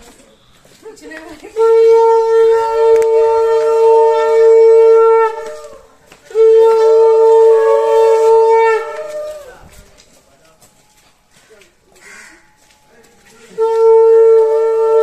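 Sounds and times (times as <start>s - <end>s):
conch shell blasts: 1.6s - 9.6s, 13.5s - 15.0s.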